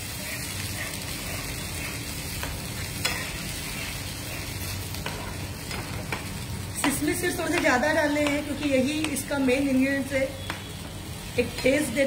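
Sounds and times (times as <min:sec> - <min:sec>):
liquid sizzling: 0:00.0 - 0:12.0
spatula stirring sauce in pan: 0:00.1 - 0:09.3
spatula tapping pan: 0:05.0 - 0:09.4.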